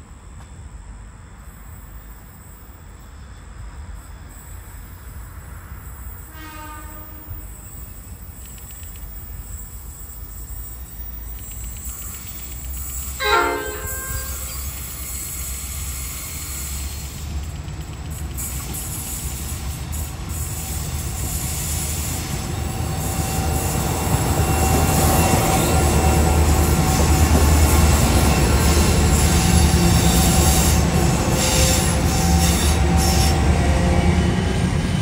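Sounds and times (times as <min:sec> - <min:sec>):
locomotive horn blasts: 0:06.2 - 0:07.7, 0:13.2 - 0:14.8.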